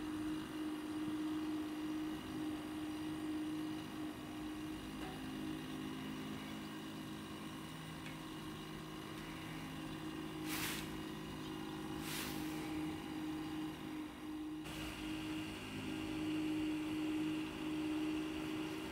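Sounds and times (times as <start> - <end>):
steady mechanical hum: 0.0 - 18.9.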